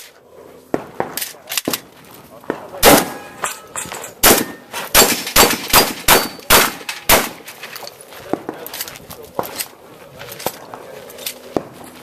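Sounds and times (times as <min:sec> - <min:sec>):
rapid rifle gunshots: 0:02.8 - 0:03.2, 0:04.2 - 0:07.4.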